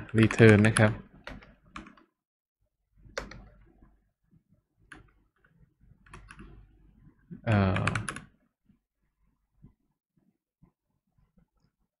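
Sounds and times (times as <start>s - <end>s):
computer keyboard keystrokes: 0.0s - 2.1s, 3.1s - 3.6s, 6.1s - 6.5s, 7.6s - 8.3s.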